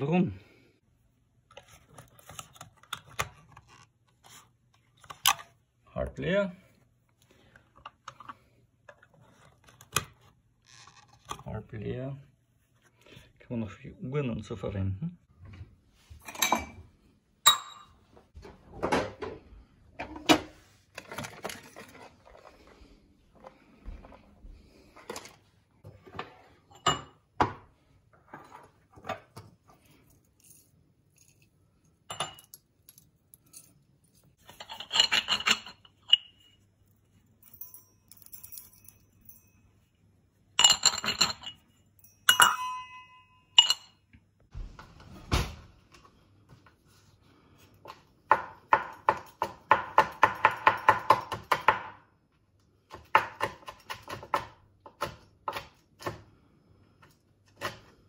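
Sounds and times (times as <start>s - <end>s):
glass jars and metal cup clinking: 17.4s - 18.0s, 32.1s - 33.7s, 34.4s - 36.6s, 40.6s - 44.0s.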